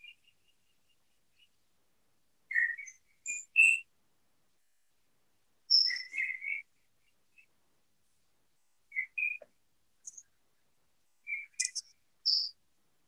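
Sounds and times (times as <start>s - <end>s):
bird chirping whistled notes: 2.5s - 3.9s, 5.7s - 6.6s, 8.9s - 9.4s, 11.3s - 12.6s.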